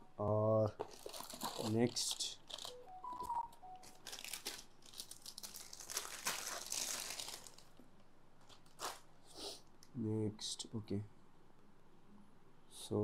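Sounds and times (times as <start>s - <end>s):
plastic bag crinkling: 0.7s - 7.8s, 8.4s - 9.1s.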